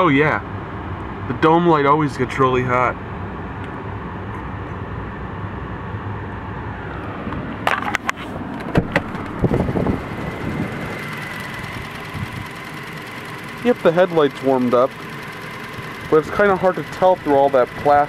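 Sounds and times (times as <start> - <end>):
truck door opening and shutting: 7.6 - 10.0
truck engine idling: 8.7 - 18.0.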